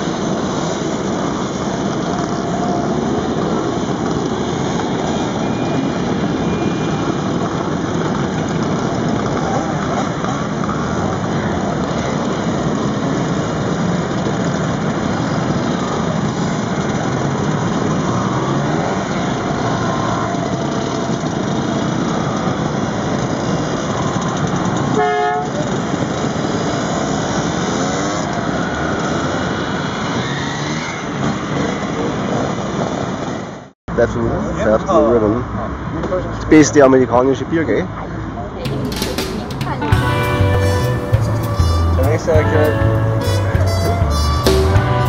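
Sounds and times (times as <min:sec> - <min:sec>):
scooter engines revving past: 0:00.0 - 0:36.4, 0:38.5 - 0:45.0
scooter horn toot: 0:24.8 - 0:25.8.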